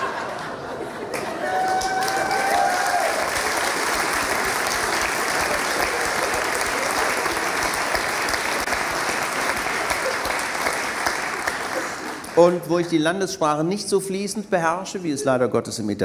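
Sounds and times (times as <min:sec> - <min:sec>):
audience laughter: 0:00.0 - 0:01.4, 0:09.4 - 0:11.0
audience applauding: 0:00.0 - 0:13.0.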